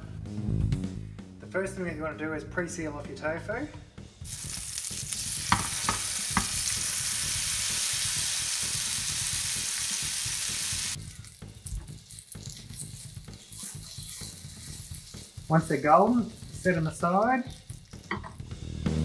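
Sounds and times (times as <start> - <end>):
tofu sizzling in hot oil: 4.2 - 18.1
tofu cubes knocking into pan: 5.4 - 6.7.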